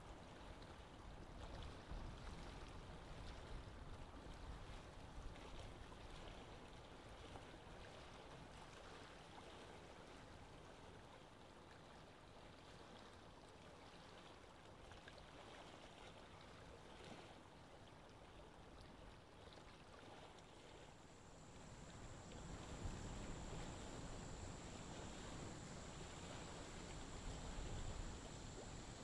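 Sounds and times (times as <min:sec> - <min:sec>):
aquarium air bubbles trickling: 0:21.0 - 0:29.0.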